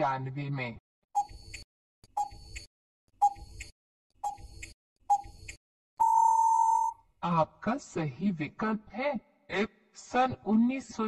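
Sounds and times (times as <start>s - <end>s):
timer ticks: 1.2s - 5.6s
long steady beep: 6.0s - 6.9s.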